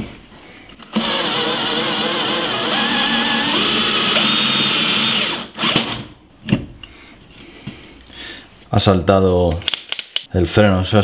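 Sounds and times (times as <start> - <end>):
drill cutting through metal plate: 0.9 - 6.0
drill torque clutch tripping: 0.9 - 6.0.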